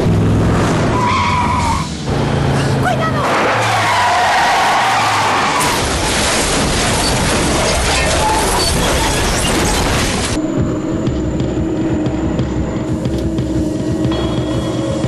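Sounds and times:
loud vehicle crash noise: 0.0s - 10.4s.

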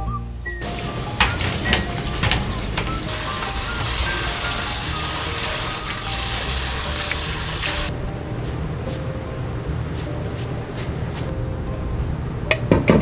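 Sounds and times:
tap water splashing into bowl: 0.7s - 7.9s.

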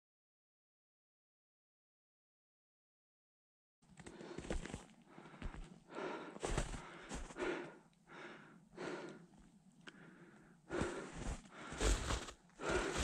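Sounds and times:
person breathing: 4.0s - 13.0s
footsteps crunching in snow: 6.4s - 7.4s, 10.8s - 13.0s.

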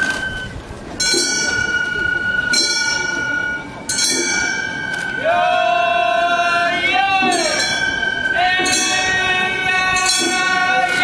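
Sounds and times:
bamboo flute rising note: 1.6s - 8.6s.

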